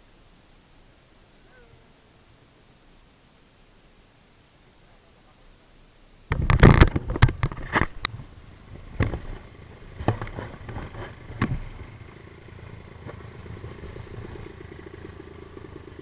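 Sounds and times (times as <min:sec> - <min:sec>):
faint steady hum: 0:00.0 - 0:16.0
sharp knocks and clattering: 0:06.3 - 0:12.0.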